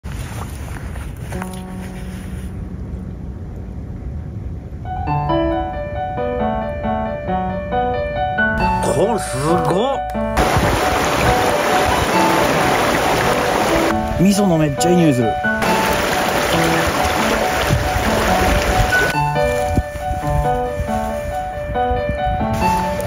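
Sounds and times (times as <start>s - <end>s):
low background rumble: 0.1s - 9.4s
piano melody: 1.3s - 23.0s
background music with held notes: 1.4s - 4.0s, 4.6s - 23.0s
mountain stream rushing: 10.4s - 19.8s.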